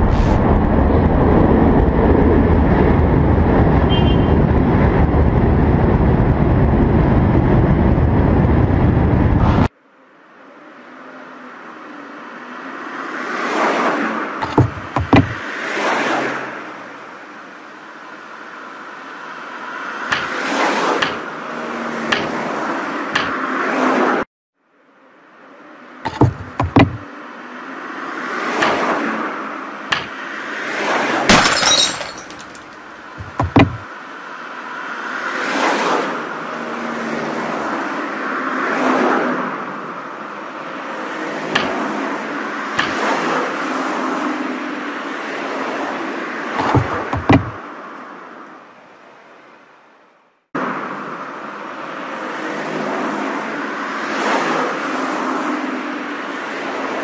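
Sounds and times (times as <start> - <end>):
road noise: 0.0 - 57.0
knocks against a car: 14.4 - 15.4, 20.1 - 20.4, 26.1 - 27.0, 29.9 - 30.2, 33.2 - 33.9, 41.6 - 41.9, 42.8 - 43.0, 46.6 - 47.6
car window glass shattering: 31.3 - 33.9.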